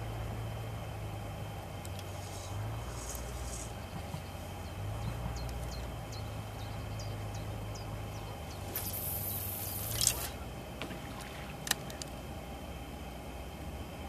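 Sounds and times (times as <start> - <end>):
fishing rod clicks and taps: 1.8 - 2.1, 11.6 - 12.2
handling rustle: 2.0 - 4.2.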